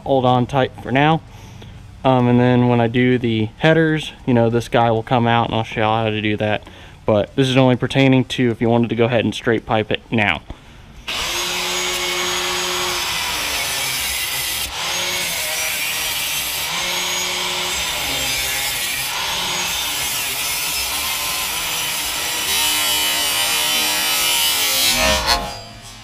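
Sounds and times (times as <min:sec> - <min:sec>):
angle grinder cutting steel pipe: 0:11.1 - 0:26.0.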